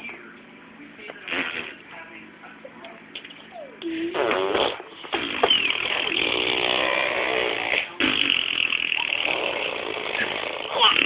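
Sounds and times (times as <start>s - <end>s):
baby making silly vocal noises: 10.6s - 11.0s.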